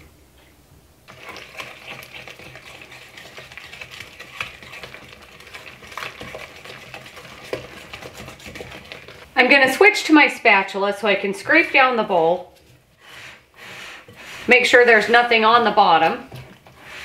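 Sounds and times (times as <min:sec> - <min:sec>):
whisk scraping dough: 0:01.1 - 0:09.8.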